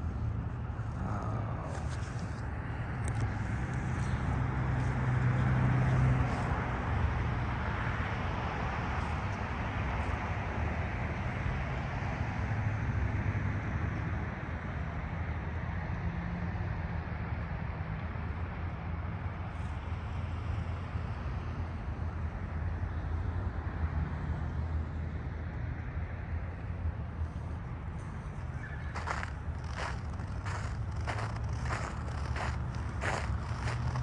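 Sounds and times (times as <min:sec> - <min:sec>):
road traffic hum: 0:00.0 - 0:34.0
vehicle passing: 0:27.2 - 0:34.0.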